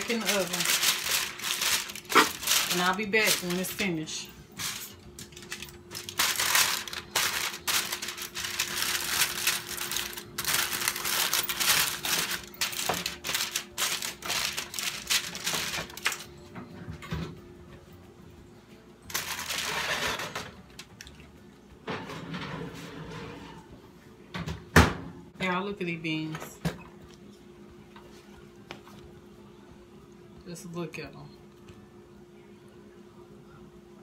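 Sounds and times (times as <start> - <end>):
aluminium foil crinkling: 0.0 - 16.3, 19.1 - 21.2.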